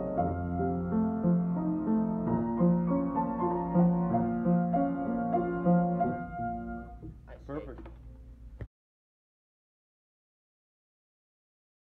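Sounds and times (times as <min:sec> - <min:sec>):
upright piano playing: 0:00.0 - 0:08.2.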